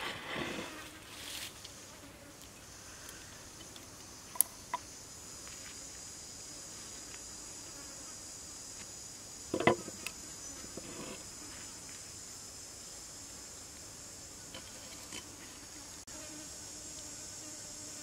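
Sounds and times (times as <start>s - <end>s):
insects droning: 0.0s - 18.0s.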